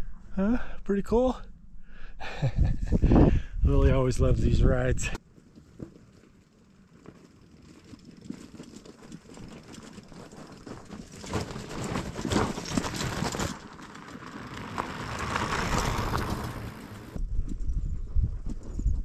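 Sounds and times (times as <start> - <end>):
bike tyres crunching on dirt: 5.2 - 17.2.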